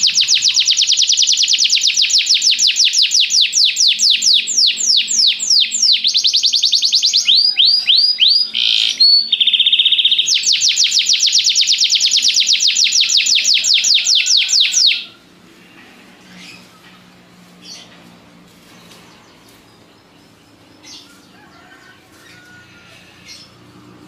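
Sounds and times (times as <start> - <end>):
canary singing a fast trill: 0.0 - 15.2.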